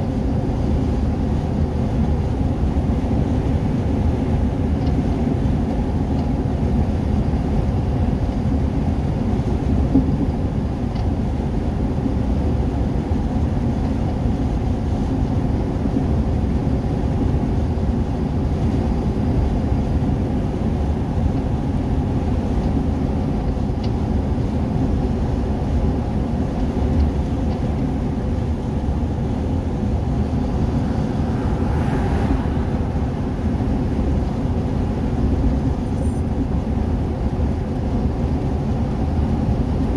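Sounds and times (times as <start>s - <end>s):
engine and tyre noise in car: 0.0s - 39.9s
car overtaking: 28.9s - 35.9s.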